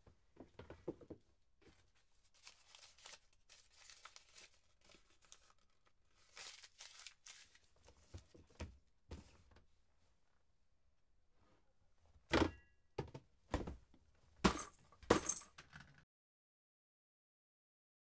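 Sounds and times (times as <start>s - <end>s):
paper rustling and crinkling: 1.6s - 8.5s.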